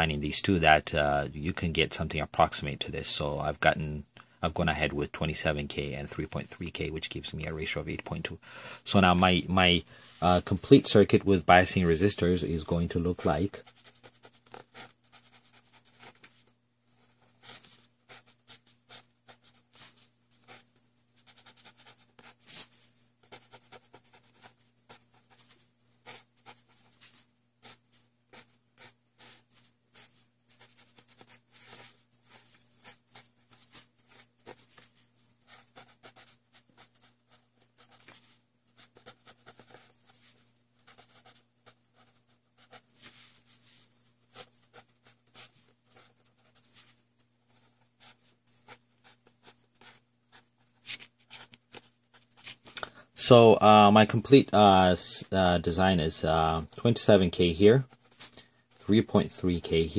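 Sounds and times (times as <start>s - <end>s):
ballpoint pen scratching on paper: 13.6s - 38.2s, 38.8s - 42.9s, 47.5s - 52.6s.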